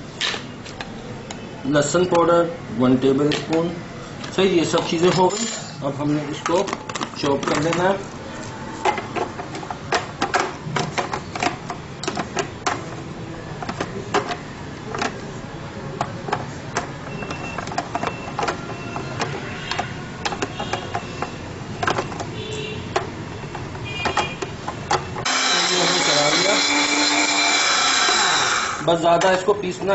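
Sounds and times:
plastic jar clicks and knocks: 16.0 - 23.1.

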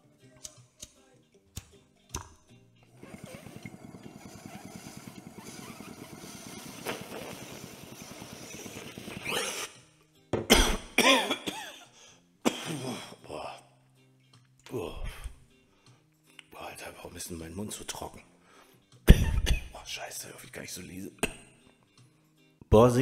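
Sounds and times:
bong bubbling: 3.0 - 9.7
person coughing hard: 10.4 - 13.2, 19.1 - 19.8.

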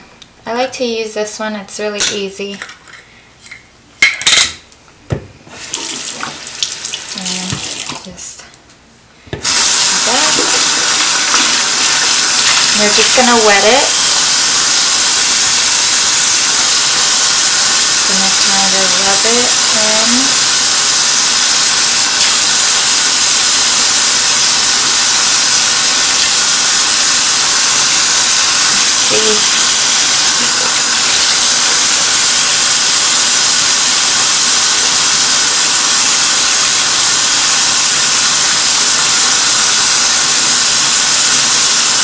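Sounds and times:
tap running into a sink: 5.1 - 8.1, 9.4 - 13.2.

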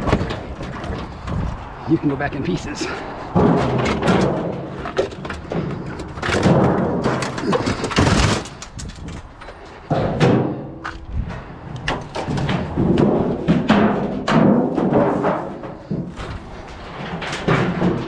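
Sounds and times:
sheet metal thuds and clanks: 2.9 - 9.1, 9.8 - 18.0.

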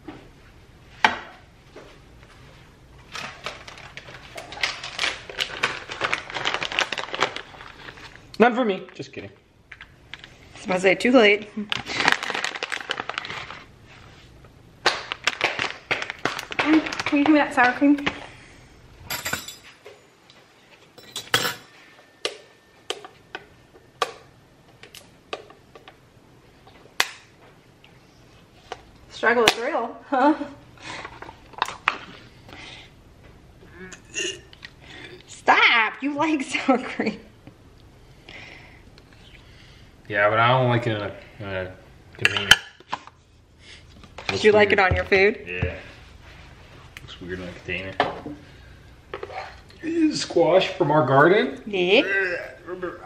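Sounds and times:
plastic pouch crinkling: 3.1 - 8.3, 11.7 - 13.7, 14.8 - 17.2.

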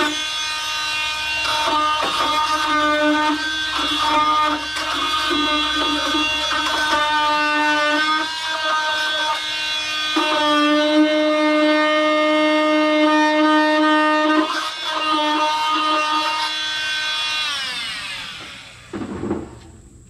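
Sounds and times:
oscillating multi-tool buzzing: 0.0 - 19.0
short knock: 19.0 - 19.7.

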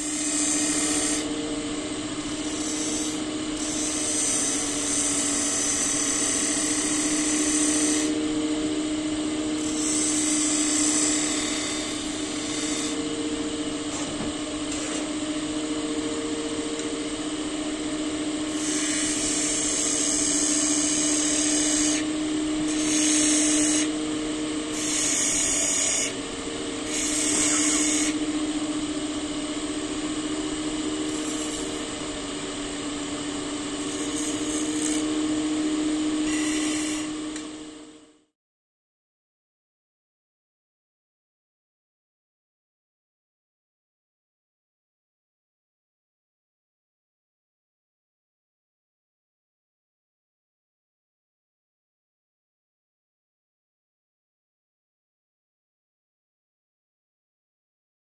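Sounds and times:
lathe tool hissing on wood: 0.0 - 1.3, 2.1 - 8.2, 9.6 - 13.0, 18.4 - 24.0, 24.7 - 26.2, 26.8 - 37.2
wood lathe motor hum: 0.0 - 38.2.

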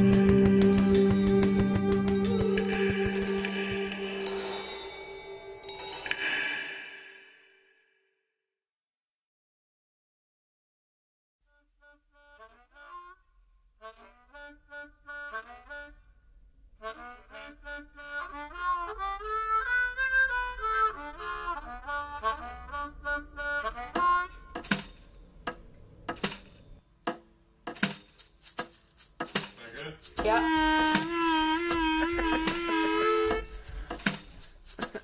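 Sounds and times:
harmonica playing chords: 0.0 - 4.9, 11.5 - 16.1, 16.8 - 24.6, 30.1 - 34.9.

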